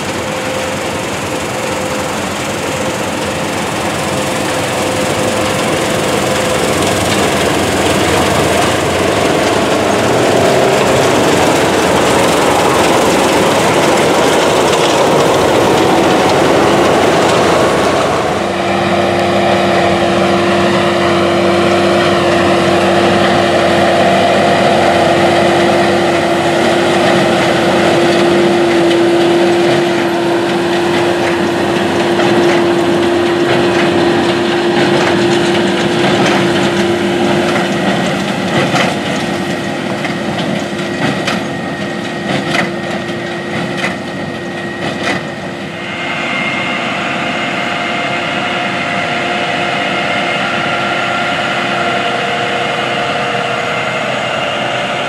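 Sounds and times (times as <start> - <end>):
baler and tractor droning: 0.0 - 55.0
sharp knocks and clatter: 27.0 - 45.3.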